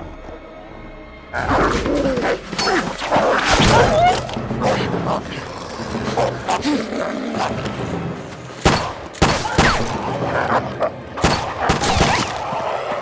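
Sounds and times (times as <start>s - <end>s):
wolves growling: 1.3s - 8.2s.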